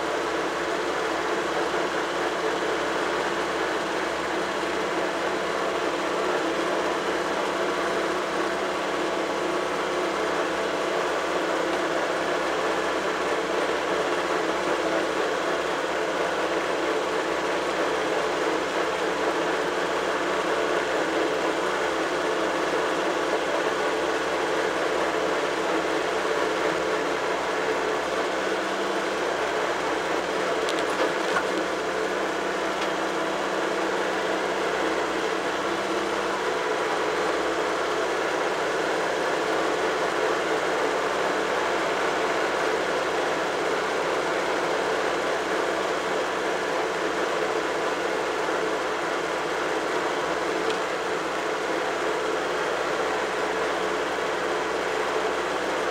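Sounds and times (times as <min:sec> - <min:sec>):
tractor engine running: 0:00.0 - 0:55.9.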